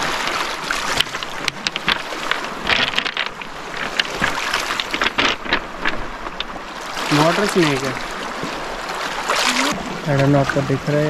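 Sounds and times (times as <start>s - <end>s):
water clicking among stones: 0.0s - 8.5s
waves lapping on pebble shore: 0.0s - 9.8s.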